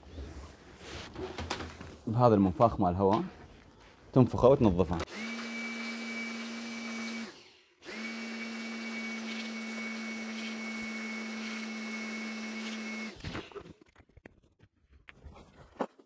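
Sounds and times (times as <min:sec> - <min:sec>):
electric air blower running: 0:05.1 - 0:13.2.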